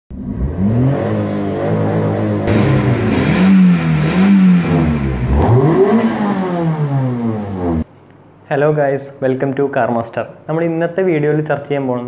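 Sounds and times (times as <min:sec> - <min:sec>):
car engine revving: 0:00.1 - 0:07.8.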